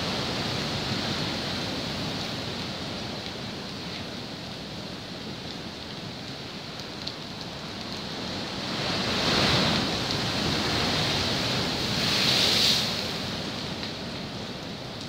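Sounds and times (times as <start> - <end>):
surf crashing on rocks: 8.4 - 14.2.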